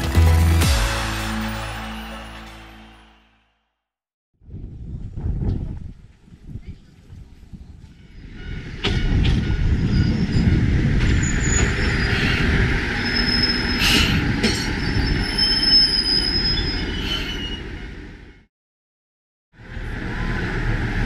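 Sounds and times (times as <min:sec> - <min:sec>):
train engine and wheels rumbling: 0:04.7 - 0:18.4, 0:19.6 - 0:21.0
high brake squeal: 0:09.8 - 0:17.8.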